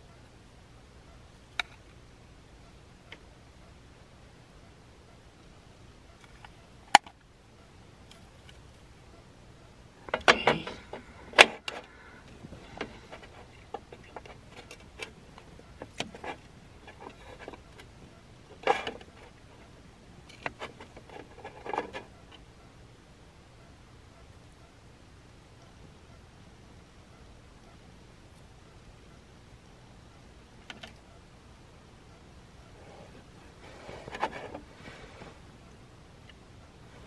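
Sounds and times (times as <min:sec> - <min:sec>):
rustling: 0:10.0 - 0:22.5, 0:32.7 - 0:35.8.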